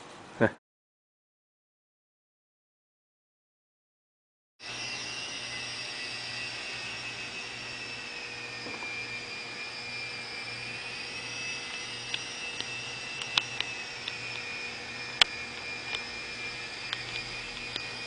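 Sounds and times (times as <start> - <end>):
model airplane motor whine: 4.6 - 18.0
sharp clicks: 11.7 - 14.5, 15.1 - 16.1, 16.8 - 18.0.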